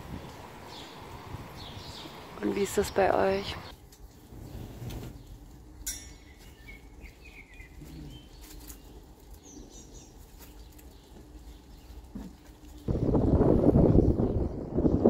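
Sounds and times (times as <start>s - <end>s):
low outdoor rumble: 0.0s - 15.0s
bird chirps: 0.2s - 3.7s, 5.2s - 11.9s.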